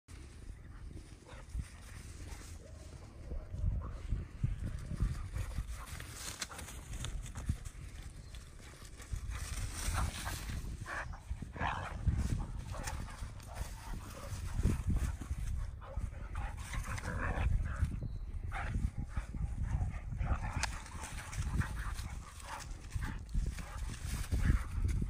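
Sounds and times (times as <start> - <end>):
dogs grunting and growling: 10.9 - 13.7.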